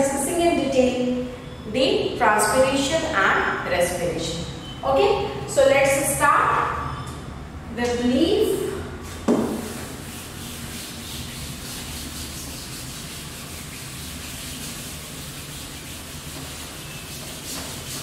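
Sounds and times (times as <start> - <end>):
duster wiping chalkboard: 9.0 - 18.0.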